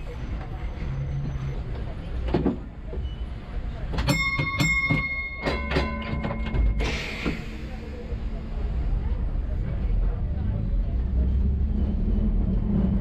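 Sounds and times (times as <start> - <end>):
tram clunks and knocks: 0.0 - 8.4.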